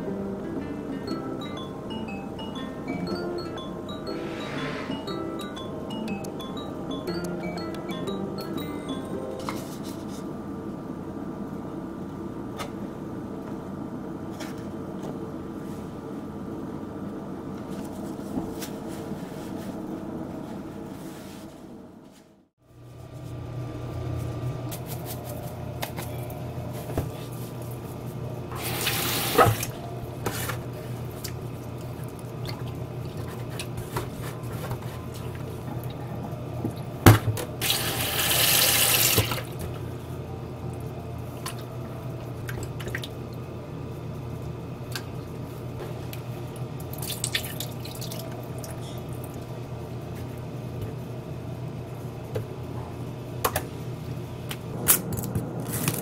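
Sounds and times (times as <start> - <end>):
tap water running into sink: 37.6 - 39.5.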